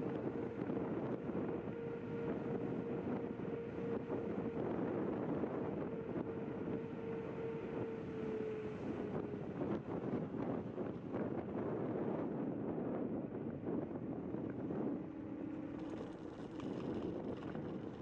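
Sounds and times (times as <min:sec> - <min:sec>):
wind buffeting microphone: 0:00.0 - 0:18.0
tyre rumble on asphalt: 0:15.4 - 0:18.0.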